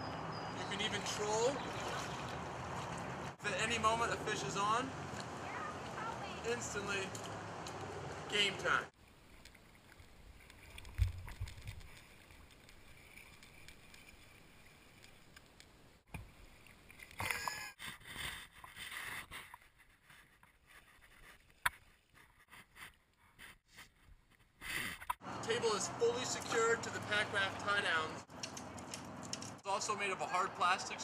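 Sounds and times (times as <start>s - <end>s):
water splashing against raft: 0.7s - 3.4s.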